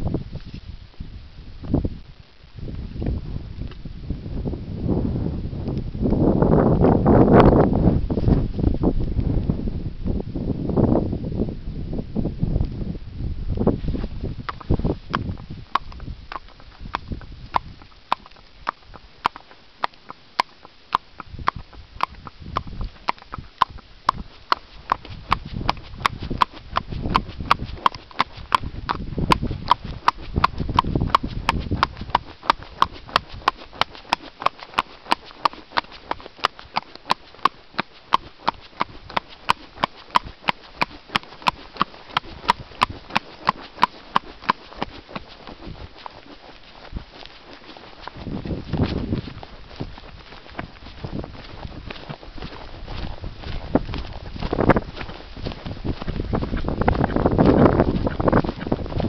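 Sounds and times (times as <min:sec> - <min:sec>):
hooves clip-clopping on concrete: 0:13.5 - 0:59.0.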